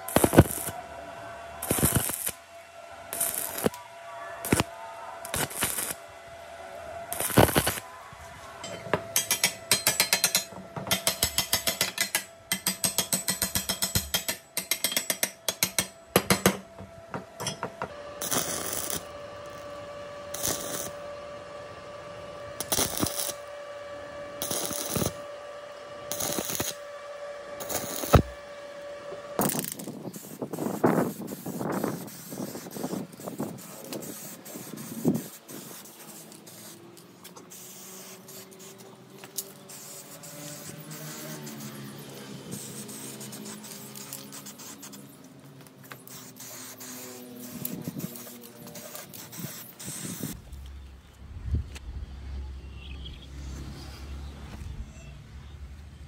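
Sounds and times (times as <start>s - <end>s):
crackling arc welds: 0.0s - 6.1s, 6.7s - 8.0s, 17.4s - 50.8s.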